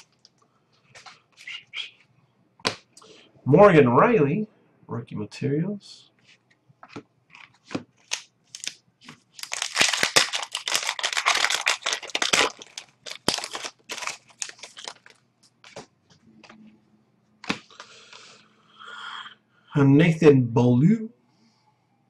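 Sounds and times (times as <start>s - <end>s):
cards clicking and rustling: 6.8s - 16.6s
wrapper crinkling: 7.3s - 15.9s.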